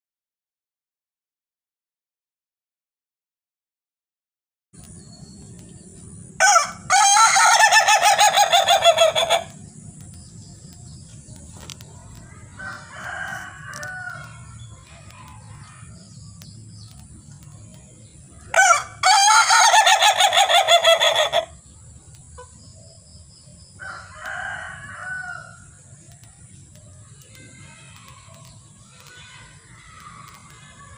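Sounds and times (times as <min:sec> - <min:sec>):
rooster crowing: 0:06.4 - 0:09.6, 0:12.5 - 0:14.6, 0:18.5 - 0:21.5, 0:23.8 - 0:25.7
chicken calls: 0:06.4 - 0:10.3, 0:18.3 - 0:21.7.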